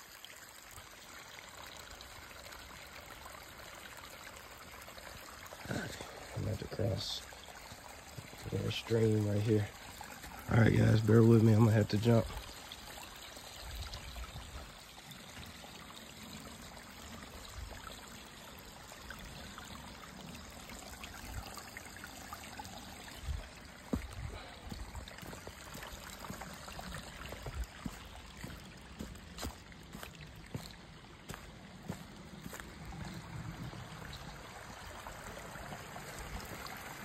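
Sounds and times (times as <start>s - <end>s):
stream trickling over rocks: 0.0s - 37.0s
footsteps on wet rock and mud: 23.8s - 33.2s.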